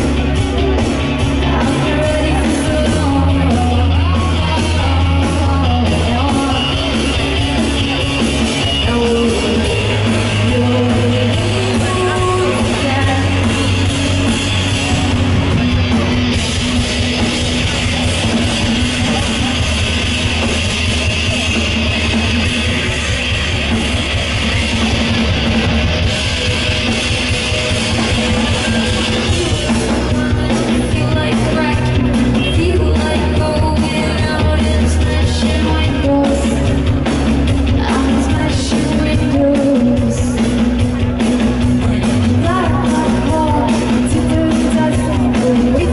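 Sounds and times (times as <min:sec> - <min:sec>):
live rock band playing: 0:00.0 - 0:45.9
woman singing: 0:01.2 - 0:14.0, 0:29.1 - 0:36.9, 0:37.7 - 0:40.6, 0:42.3 - 0:45.9.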